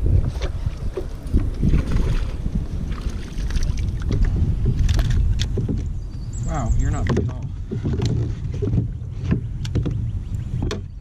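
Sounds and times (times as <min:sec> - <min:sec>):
water splashes: 0:00.0 - 0:05.9
wind rumbling on microphone: 0:00.0 - 0:11.0.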